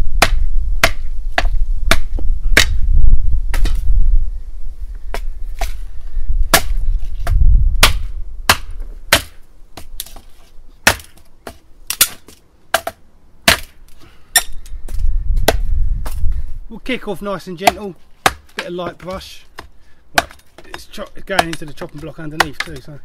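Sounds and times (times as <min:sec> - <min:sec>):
machete chopping into wood: 0:00.2 - 0:02.8, 0:06.5 - 0:14.6, 0:15.4 - 0:16.2, 0:17.6 - 0:22.9.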